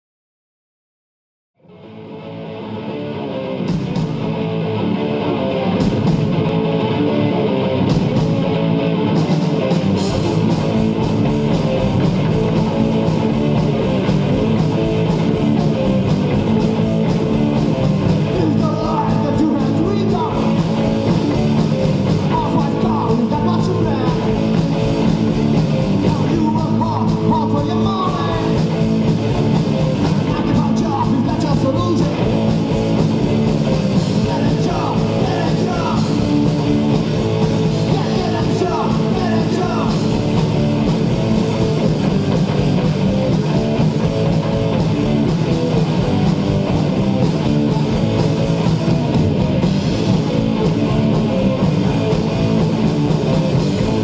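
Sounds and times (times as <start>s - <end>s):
electric guitars and bass: 1.6s - 54.0s
drum kit: 3.6s - 4.5s, 5.5s - 54.0s
person singing or shouting: 18.2s - 20.9s, 22.2s - 24.6s, 26.0s - 28.7s, 30.1s - 32.3s, 34.1s - 36.6s, 37.7s - 40.4s.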